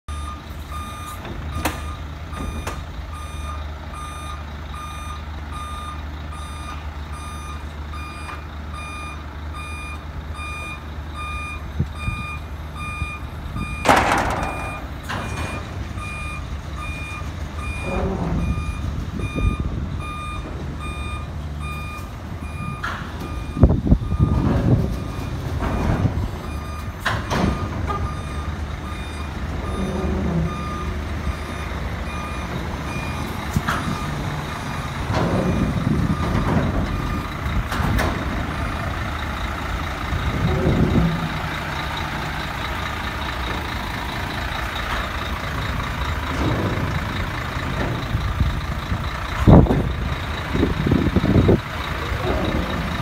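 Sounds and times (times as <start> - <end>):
truck engine idling: 0.1 - 53.0
truck warning beeper: 0.1 - 53.0
metal clanks: 13.8 - 15.8.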